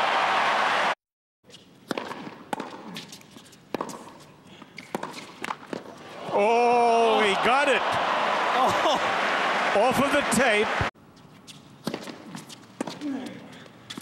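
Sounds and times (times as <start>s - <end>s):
crowd noise: 0.0s - 1.0s, 6.0s - 10.9s
tennis ball bounces: 1.8s - 3.1s, 3.7s - 4.2s, 4.8s - 5.9s, 11.8s - 13.0s.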